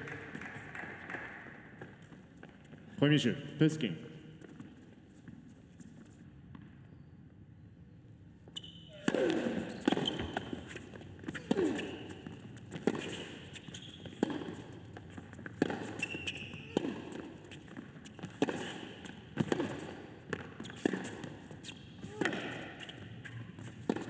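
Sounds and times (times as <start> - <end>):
tennis racket hitting ball: 9.0 - 24.0.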